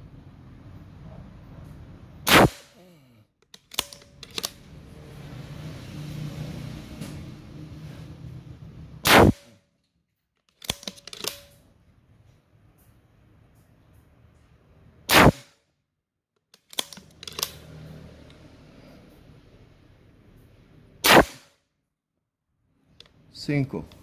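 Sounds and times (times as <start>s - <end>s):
air rifle shots: 2.2s - 2.8s, 9.0s - 9.5s, 15.1s - 15.5s, 21.0s - 21.5s.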